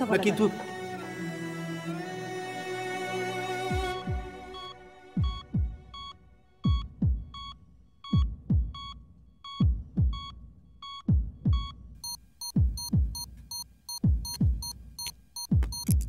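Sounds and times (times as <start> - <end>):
heartbeat thumps: 3.7 - 4.4, 5.2 - 11.9, 12.5 - 13.4, 14.0 - 14.8, 15.5 - 16.0
patient monitor beeps: 4.5 - 16.0.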